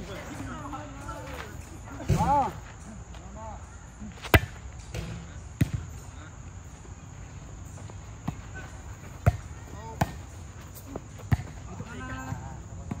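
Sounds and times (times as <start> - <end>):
volleyball smacks: 4.2 - 5.9.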